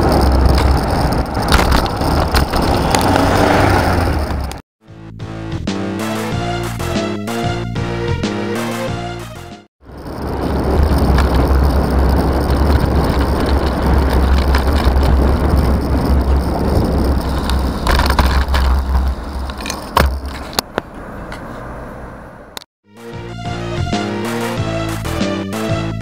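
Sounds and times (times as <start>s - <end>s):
car passing close: 0.0s - 4.6s
road and traffic noise: 0.0s - 4.6s, 9.8s - 22.7s
wind buffeting microphone: 0.0s - 4.6s, 9.8s - 20.6s.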